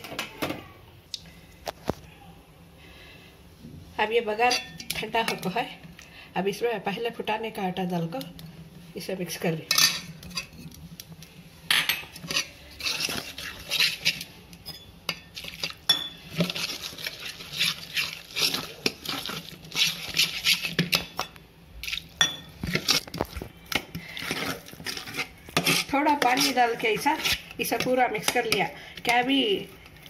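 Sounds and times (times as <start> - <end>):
ladle scraping metal pot: 11.8 - 29.3.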